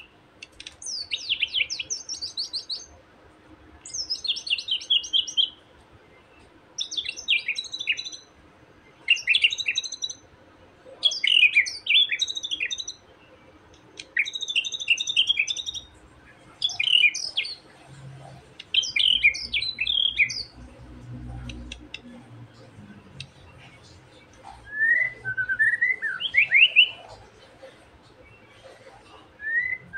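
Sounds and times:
bird song with falling notes: 0:18.7 - 0:22.2, 0:23.2 - 0:27.3.

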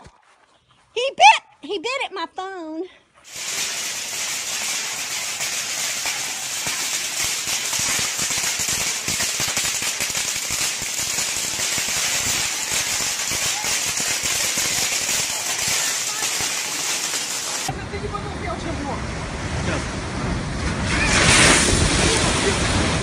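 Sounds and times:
fireworks crackling and popping: 0:03.2 - 0:17.7, 0:20.9 - 0:23.0
hissing sparks: 0:03.3 - 0:17.7.

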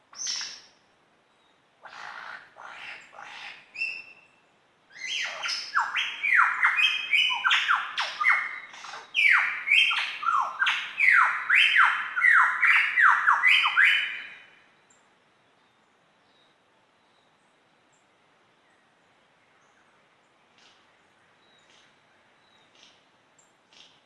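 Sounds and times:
lyrebird whistled song: 0:00.1 - 0:00.7, 0:03.8 - 0:04.3, 0:04.9 - 0:14.6
short bird calls: 0:05.0 - 0:14.7.

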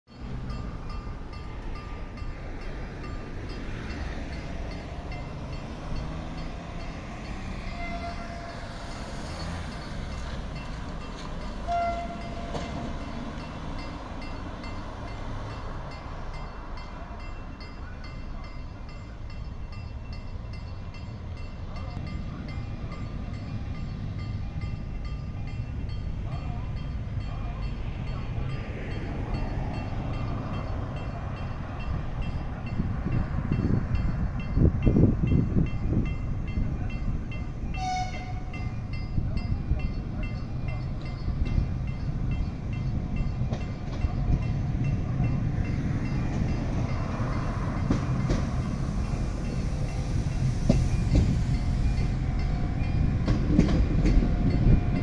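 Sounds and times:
crossing warning bell ringing: 0:00.1 - 0:55.0
road traffic rumbling: 0:00.1 - 0:55.0
vehicle horn: 0:07.7 - 0:08.6, 0:11.6 - 0:12.6, 0:37.8 - 0:38.6.

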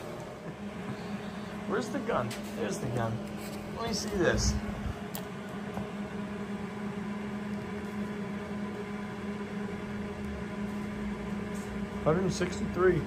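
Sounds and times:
steady machine hum: 0:00.0 - 0:13.0.

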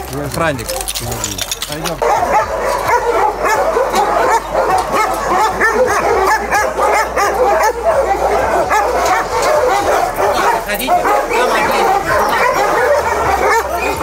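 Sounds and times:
many dogs barking and yelping: 0:00.0 - 0:14.0.

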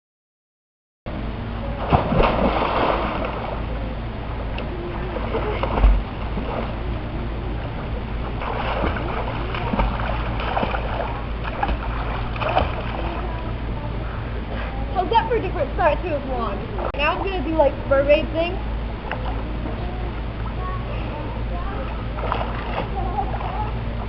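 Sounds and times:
swimmer diving into pool: 0:01.7 - 0:03.8, 0:07.9 - 0:13.4
swimming splashes: 0:01.8 - 0:03.8, 0:04.7 - 0:13.5, 0:22.0 - 0:24.0.

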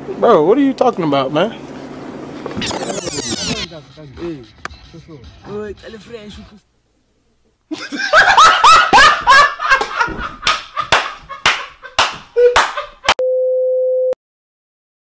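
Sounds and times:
bursts of laughter: 0:07.7 - 0:13.2.

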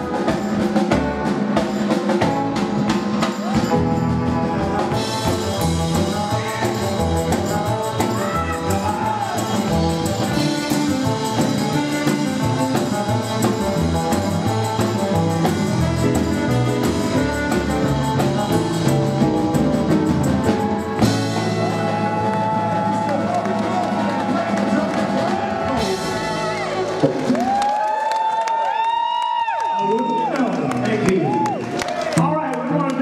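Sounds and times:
saxophone lead: 0:00.0 - 0:27.6
rockabilly band playing: 0:00.0 - 0:33.0.

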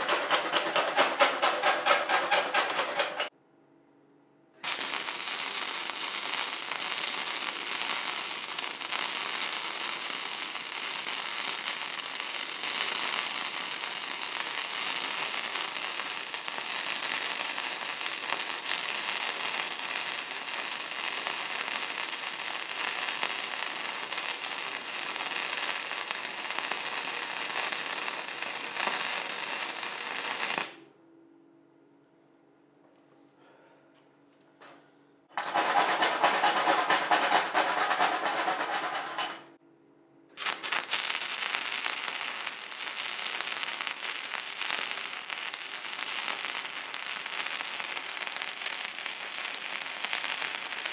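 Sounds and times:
welding arc crackling: 0:00.0 - 0:03.3, 0:04.6 - 0:30.8, 0:40.4 - 0:50.9.

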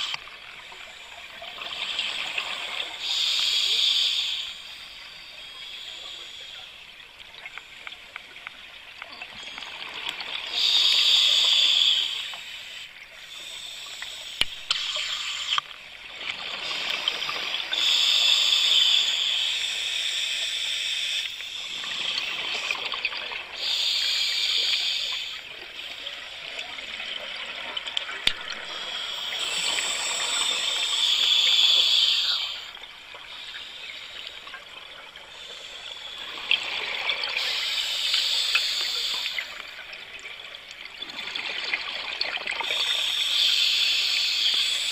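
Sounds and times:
regulator hiss: 0:00.0 - 0:01.2, 0:02.1 - 0:06.9, 0:10.5 - 0:15.6, 0:16.5 - 0:22.8, 0:23.5 - 0:26.4, 0:28.4 - 0:34.6, 0:35.2 - 0:40.0, 0:42.6 - 0:44.9.

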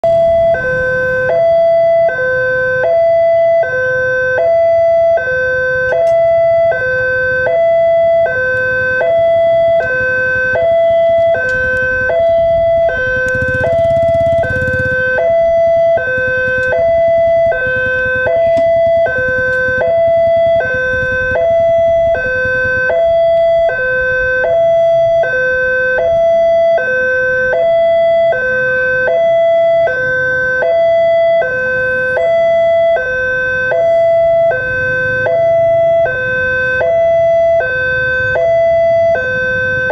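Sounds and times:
two-tone crossing alarm: 0:00.0 - 0:39.9.

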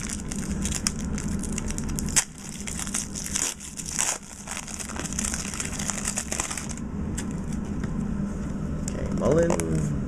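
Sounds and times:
card pack wrapper crinkling: 0:00.0 - 0:06.8.

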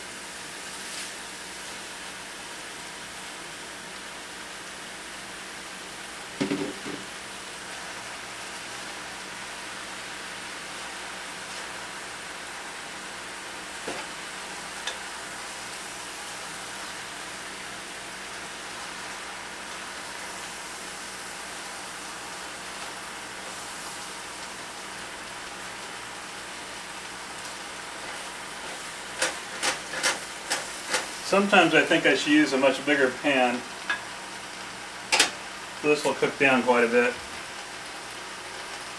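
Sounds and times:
food sizzling in a skillet: 0:00.0 - 0:38.9
wooden spoon knocking on pan: 0:06.4 - 0:07.0.

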